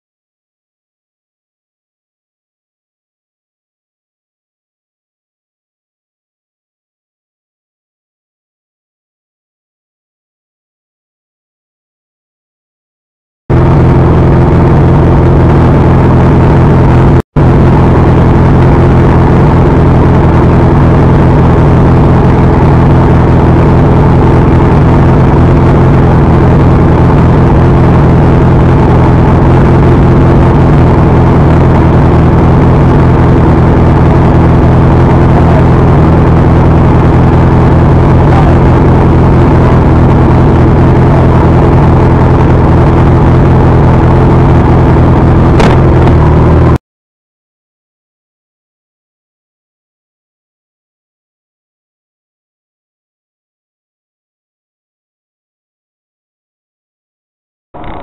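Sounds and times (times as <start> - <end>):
motor scooter engine idling: 13.5 - 43.4, 57.8 - 58.0.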